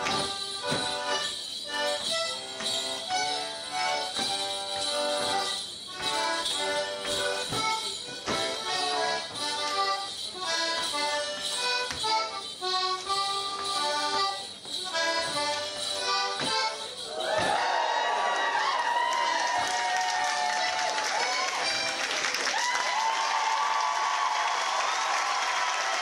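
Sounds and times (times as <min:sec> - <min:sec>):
accordion playing jig: 0:00.0 - 0:17.6, 0:20.5 - 0:22.5
sharp dance steps: 0:00.0 - 0:17.9
leg bells jingling: 0:00.0 - 0:18.3.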